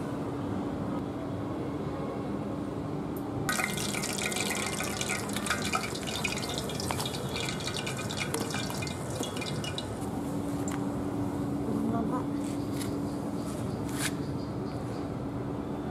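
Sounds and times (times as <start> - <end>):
hot oil sizzling and crackling: 3.5 - 10.8.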